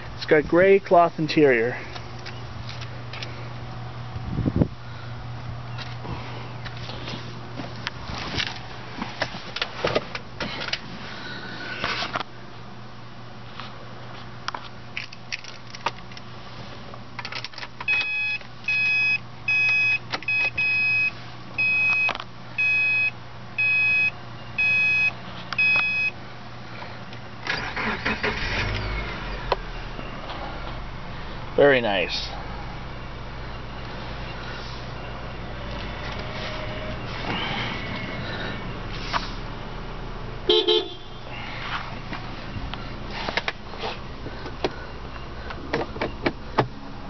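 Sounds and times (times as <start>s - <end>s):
car warning chime beeping: 17.9s - 26.2s
car engine cranking and starting: 27.4s - 31.0s.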